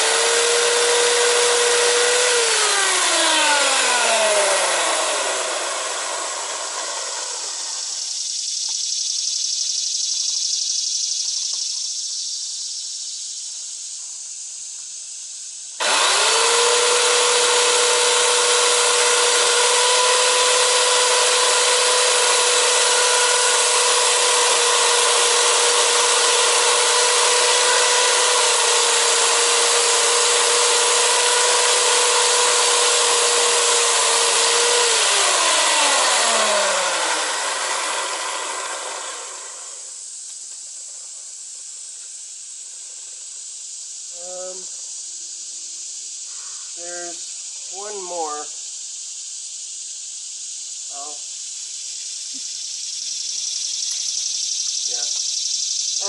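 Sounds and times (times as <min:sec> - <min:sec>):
electric chainsaw running: 0:00.0 - 0:08.4, 0:15.8 - 0:40.0
motor spinning down: 0:00.0 - 0:08.6, 0:15.8 - 0:40.0
hiss: 0:39.6 - 0:56.0.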